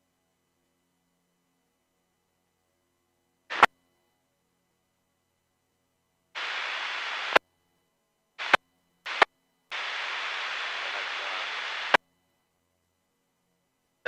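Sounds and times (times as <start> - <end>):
radio squelch click: 3.5 - 3.7, 6.4 - 7.4, 8.4 - 12.0
radio static hiss bursts: 3.5 - 3.7, 6.4 - 7.4, 8.4 - 12.0.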